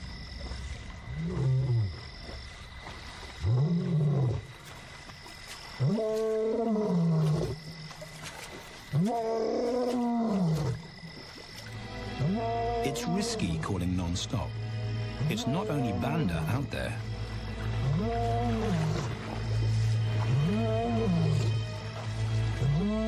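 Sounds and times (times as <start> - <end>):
lion roaring: 17.8 - 19.2, 20.3 - 21.5.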